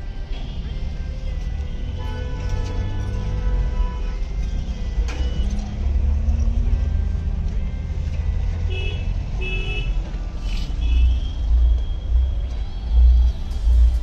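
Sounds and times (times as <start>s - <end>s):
low vehicle rumble: 10.0s - 14.0s.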